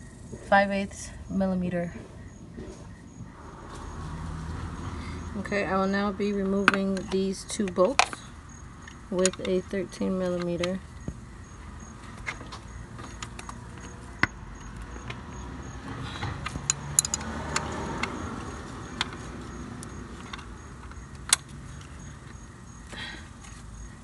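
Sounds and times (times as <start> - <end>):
socket wrench clicks and clinks: 16.4 - 18.2.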